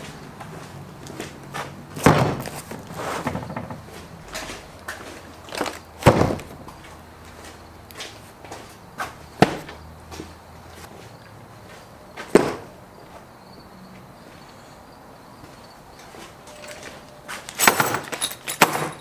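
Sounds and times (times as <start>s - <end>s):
cardboard boxes set on table: 2.0s - 6.5s.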